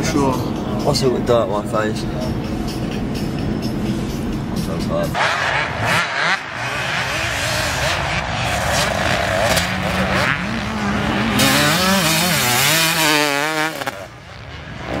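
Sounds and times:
dirt bike engine revving: 5.2s - 15.0s.

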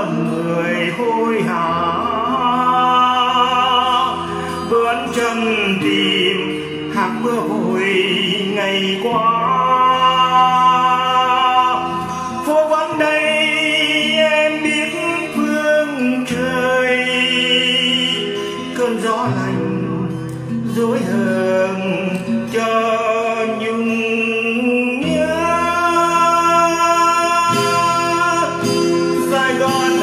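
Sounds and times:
acoustic guitar: 0.0s - 30.0s
man singing a slow ballad: 0.0s - 30.0s.

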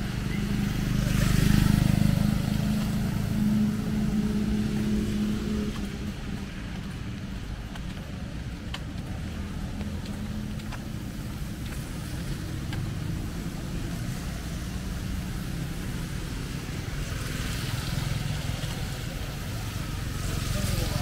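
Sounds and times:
street traffic rumble: 0.0s - 21.0s.

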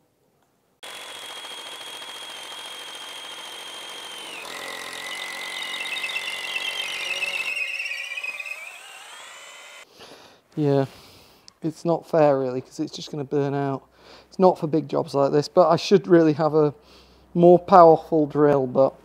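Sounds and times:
electric drill boring through wood: 0.8s - 9.9s.

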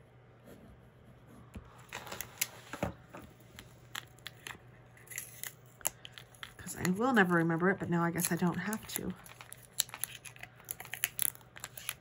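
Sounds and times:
hands handling tape and paper: 1.8s - 2.8s, 3.5s - 7.5s, 8.1s - 12.0s.

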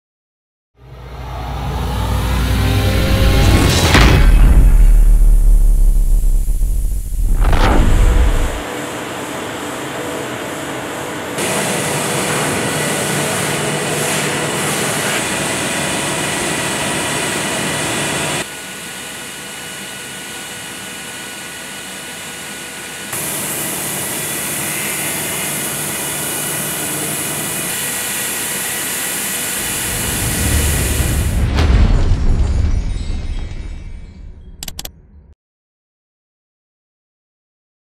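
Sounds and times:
milling machine hissing and whining: 8.4s - 31.3s.

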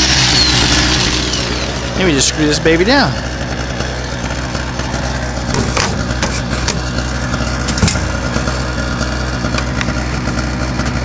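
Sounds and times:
portable generator running: 0.0s - 11.0s
clicks and knocks in metal mailbox: 7.7s - 8.2s.

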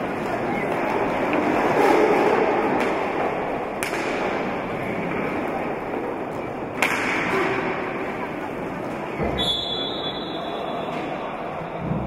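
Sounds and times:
skates rolling on wooden floor: 0.0s - 9.4s
crowd noise: 0.0s - 12.0s
stick hitting ball: 3.8s - 4.4s, 6.8s - 7.8s.

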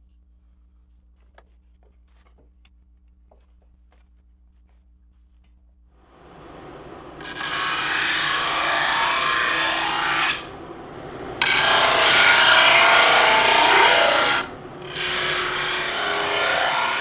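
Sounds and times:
drum sander grinding wood: 6.3s - 17.0s.

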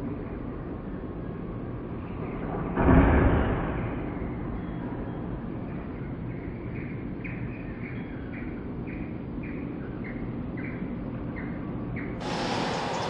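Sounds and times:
garbage truck diesel engine running: 12.2s - 13.0s
loud rushing noise: 12.2s - 13.0s.

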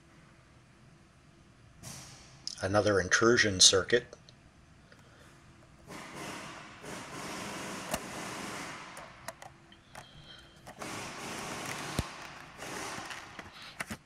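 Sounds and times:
sharp plastic clicks: 8.9s - 10.8s, 11.4s - 14.0s
plastic film rustling: 10.7s - 14.0s.

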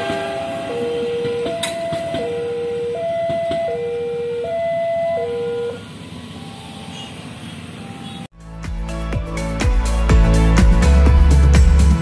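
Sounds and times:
two-tone electronic warning alarm: 0.6s - 7.2s, 7.8s - 8.3s.

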